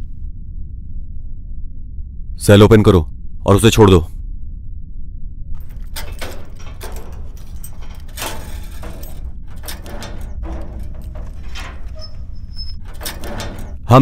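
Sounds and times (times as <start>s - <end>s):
steady low hum: 0.0s - 14.0s
keys rattling: 5.6s - 14.0s
metal cell door lock clanking: 5.6s - 14.0s.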